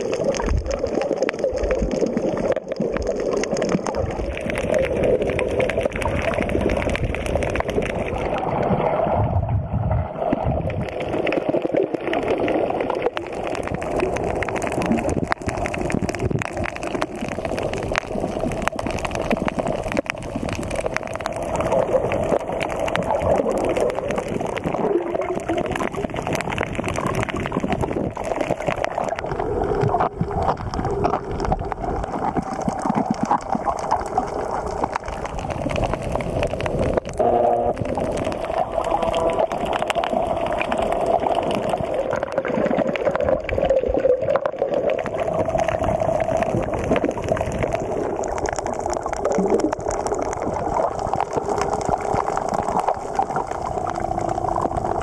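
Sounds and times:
underwater gurgling: 0.0 - 55.0
brief tone: 37.2 - 37.8.

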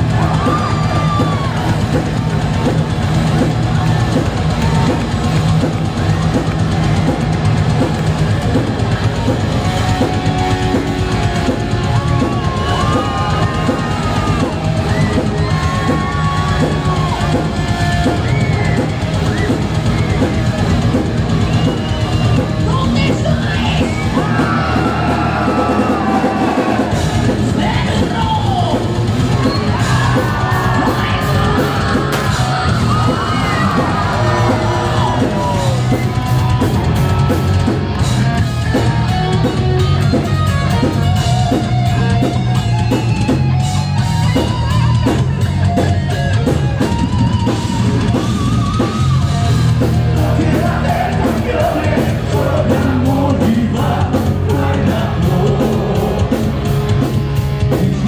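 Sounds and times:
heavy metal band playing live: 0.0 - 58.0
person singing: 50.1 - 56.8.

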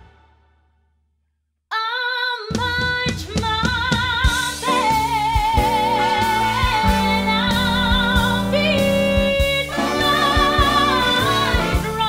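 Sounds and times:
woman singing with vibrato: 1.7 - 12.0
jazz band with saxophones: 4.2 - 12.0.

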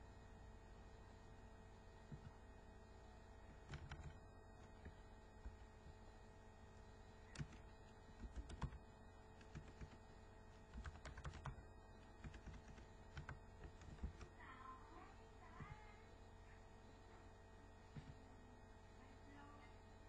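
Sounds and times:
typing on a computer keyboard: 3.5 - 5.6, 7.3 - 8.8, 9.4 - 10.0, 10.7 - 14.3.

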